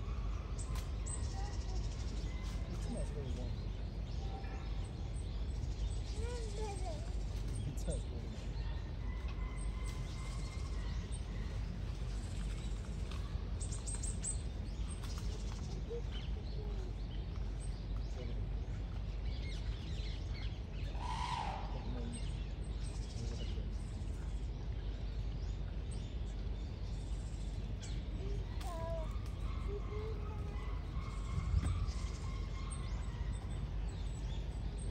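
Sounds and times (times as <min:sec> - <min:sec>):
low rumble: 0:06.8 - 0:34.9
bird call: 0:20.8 - 0:22.4.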